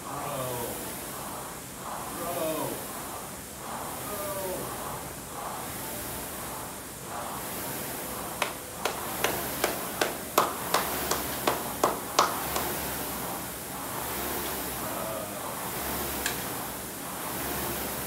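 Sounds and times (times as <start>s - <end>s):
rowing machine fan whooshing: 0.0s - 18.0s
sharp claps: 8.4s - 13.0s.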